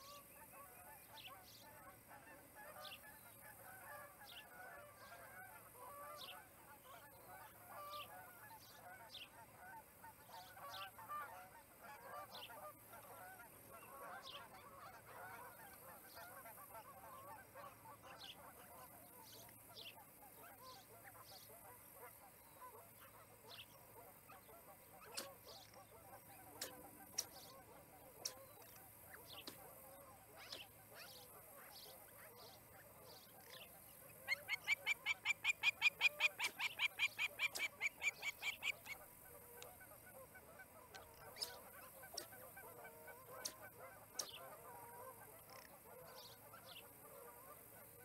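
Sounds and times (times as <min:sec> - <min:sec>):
soft continuous chirping: 0:00.0 - 0:48.0
osprey whistled chirps: 0:34.3 - 0:39.0.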